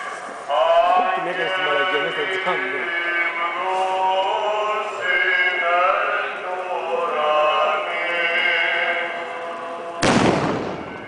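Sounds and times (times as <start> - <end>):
men chanting a hymn: 0.5 - 10.1.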